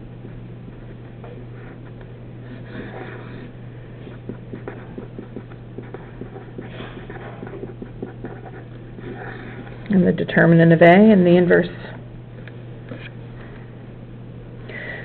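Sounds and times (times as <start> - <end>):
pen scratching on paper: 0.8 - 9.8.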